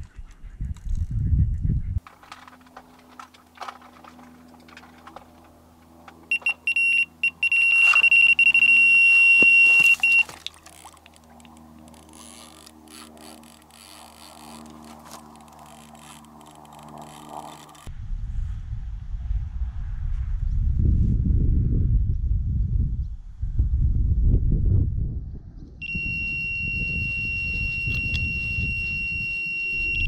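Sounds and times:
electronic bite alarm beeping: 0:06.3 - 0:10.4, 0:25.8 - 0:30.0.

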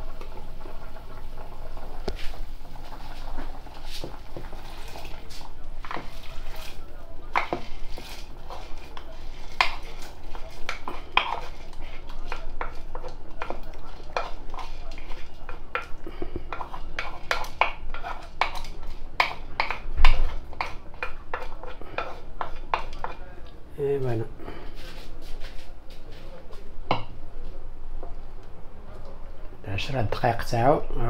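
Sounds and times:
wooden spoon scraping a wooden bowl: 0:03.7 - 0:23.2.

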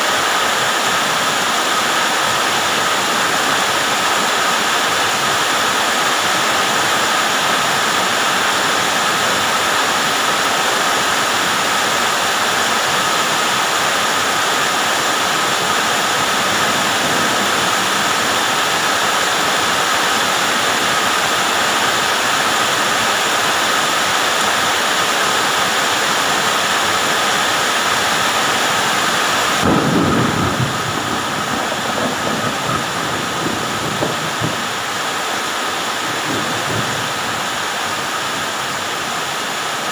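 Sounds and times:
heavy rain pouring: 0:00.0 - 0:39.9
low rumble: 0:29.6 - 0:34.0.

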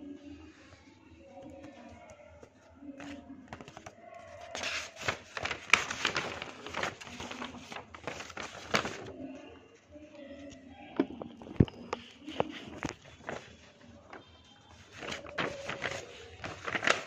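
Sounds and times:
paper rustling and crinkling: 0:01.4 - 0:09.2, 0:11.2 - 0:17.0.

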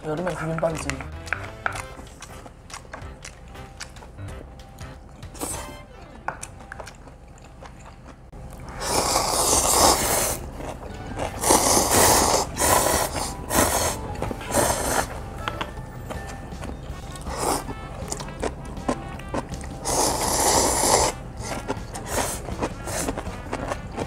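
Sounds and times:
people slurping noodles: 0:08.6 - 0:15.2, 0:19.8 - 0:23.7.

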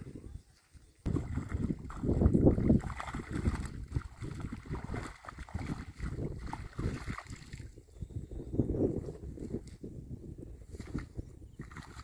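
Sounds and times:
water splashing and pouring: 0:01.1 - 0:07.8, 0:10.8 - 0:12.0.

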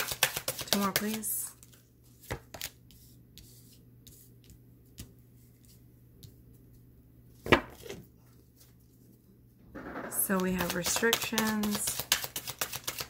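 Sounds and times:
cards ticking and tapping: 0:00.0 - 0:01.3, 0:10.3 - 0:13.0.

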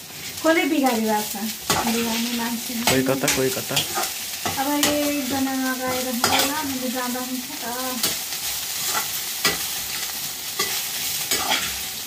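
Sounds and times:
fish sizzling in hot oil: 0:00.0 - 0:12.0
metal spatula scraping pan: 0:01.6 - 0:06.7, 0:08.0 - 0:11.8.

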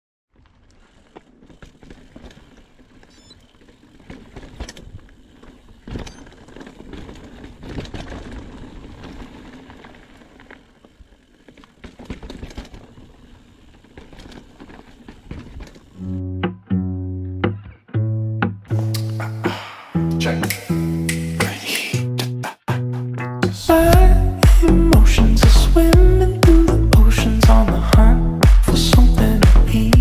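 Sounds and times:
bike knocking and rattling: 0:00.3 - 0:16.1
bike tyres crunching on gravel: 0:00.3 - 0:16.2
guitar music: 0:16.0 - 0:29.4.

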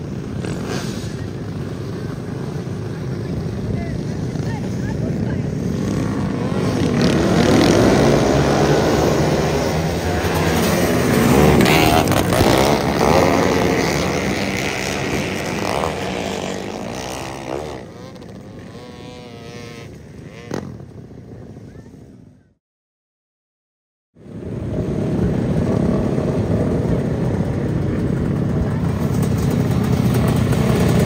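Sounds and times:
engine with wavering pitch: 0:00.0 - 0:21.0
many kart engines racing: 0:00.0 - 0:22.5, 0:24.3 - 0:31.0.

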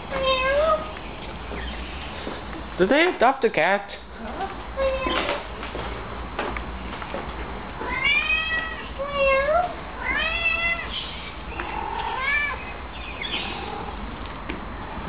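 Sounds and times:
cat meowing: 0:00.1 - 0:00.9, 0:07.8 - 0:11.0, 0:11.6 - 0:12.6.

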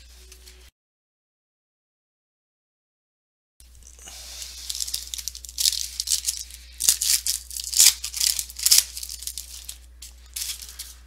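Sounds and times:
foil wrapper crinkling and tearing: 0:03.8 - 0:11.0.

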